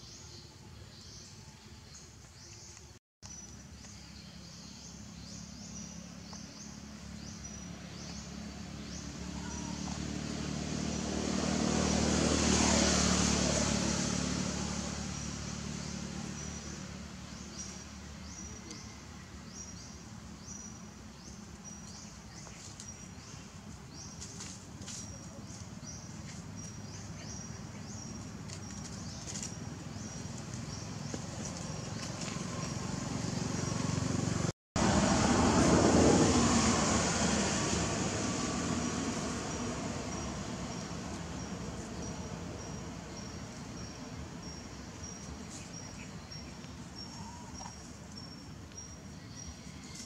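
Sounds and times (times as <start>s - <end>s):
vehicle passing by: 5.1s - 50.0s.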